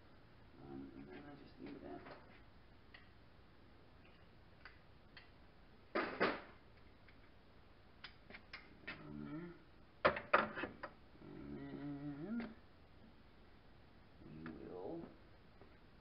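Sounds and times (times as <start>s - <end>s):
person murmuring: 8.9s - 9.7s, 11.2s - 12.6s.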